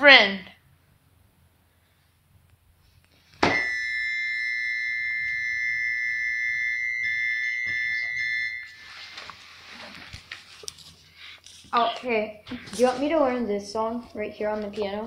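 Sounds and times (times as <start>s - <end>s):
high electronic tone: 3.4s - 9.4s.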